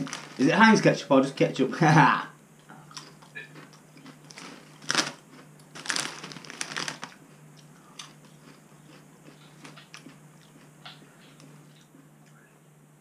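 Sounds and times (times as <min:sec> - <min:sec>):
crisps crunched and chewed: 0:00.0 - 0:00.8, 0:02.9 - 0:12.1
crisp packet crinkling: 0:00.0 - 0:00.9, 0:03.0 - 0:07.2.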